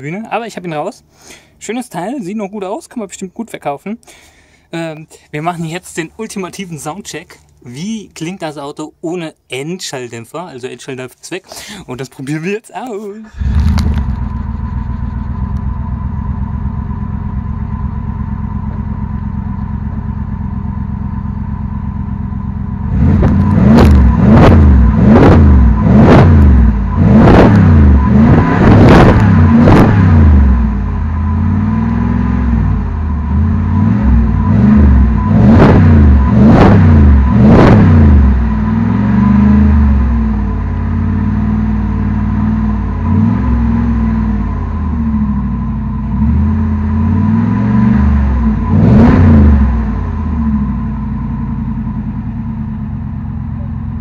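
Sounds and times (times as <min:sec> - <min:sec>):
car engine idling and revving: 0:12.8 - 0:54.0.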